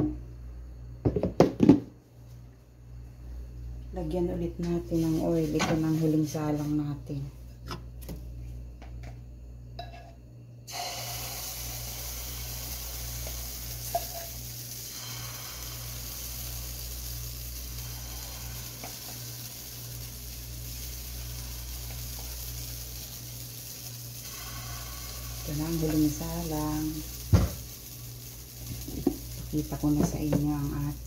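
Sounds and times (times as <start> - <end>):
batter sizzling in hot oil: 10.7 - 31.0.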